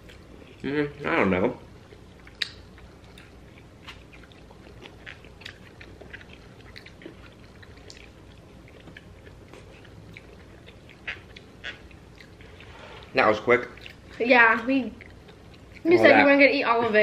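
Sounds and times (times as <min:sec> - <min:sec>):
chewing orange segments: 0:00.0 - 0:16.9
mouth clicks and smacks: 0:02.2 - 0:08.2.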